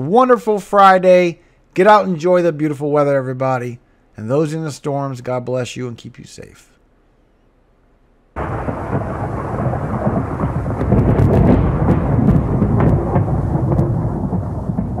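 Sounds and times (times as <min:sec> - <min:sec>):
rolling thunder rumble: 0:08.4 - 0:15.0
sharp thunder cracks: 0:08.4 - 0:15.0.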